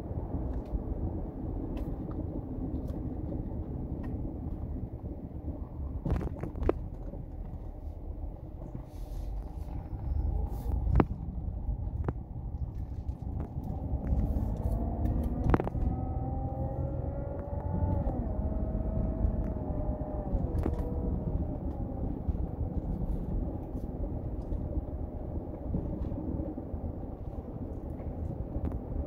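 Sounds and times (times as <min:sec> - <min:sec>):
car engine accelerating: 0:06.0 - 0:29.0.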